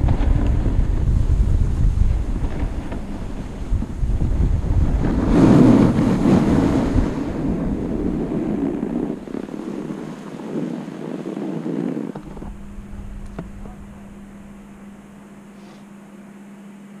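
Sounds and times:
skis hissing over snow: 0:00.0 - 0:13.2
wind rushing over microphone: 0:00.0 - 0:15.6.

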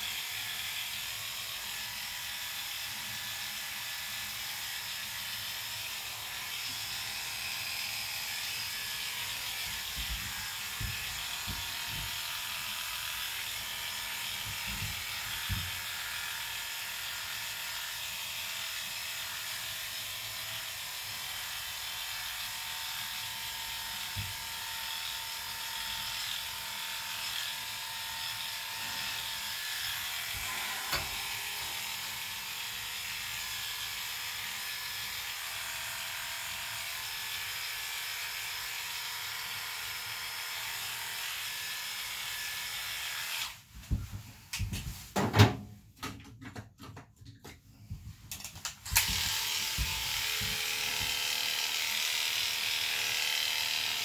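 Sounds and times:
electric clippers buzzing: 0:00.0 - 0:43.6, 0:48.4 - 0:54.0.

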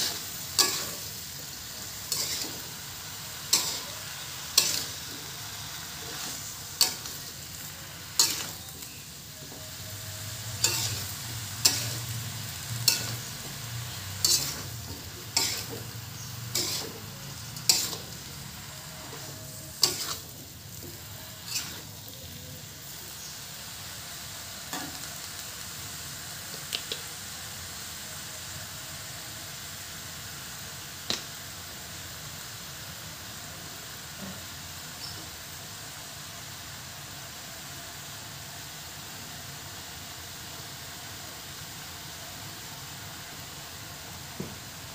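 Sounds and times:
metal spatula scraping a pan: 0:00.0 - 0:22.2
cabbage sizzling in a wok: 0:00.0 - 0:44.9.

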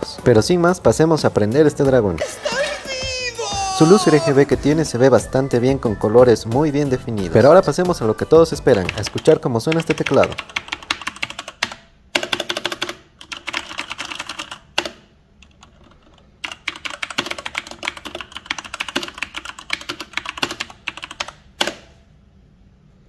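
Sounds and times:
mechanical keyboard typing: 0:08.5 - 0:21.9.

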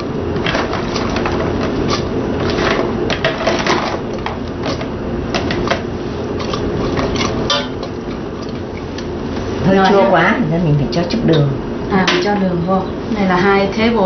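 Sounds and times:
pot boiling on gas stove: 0:00.0 - 0:11.2.

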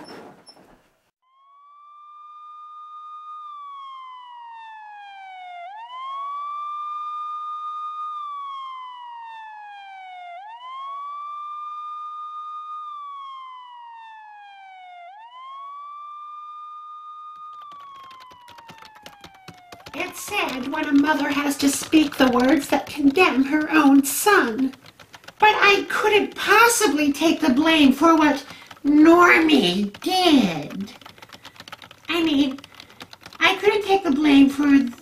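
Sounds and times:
siren wailing: 0:01.2 - 0:35.0
rapid clicking: 0:17.3 - 0:35.0.

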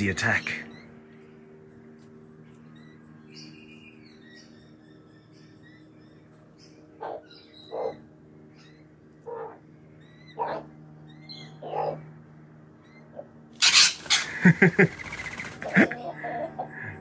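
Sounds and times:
high bird chirps: 0:13.6 - 0:15.6.

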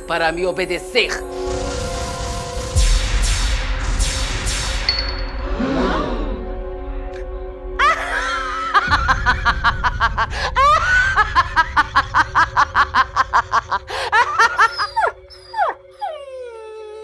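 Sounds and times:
woman cackling: 0:07.8 - 0:15.2
dog whimpering: 0:14.4 - 0:17.0.

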